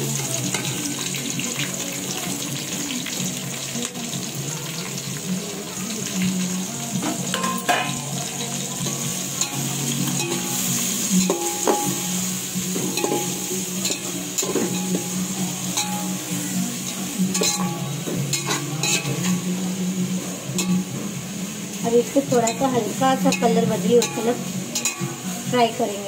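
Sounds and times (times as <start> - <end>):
onions sizzling in hot oil: 0.0 - 26.0
spoon scraping a pot: 16.9 - 19.4.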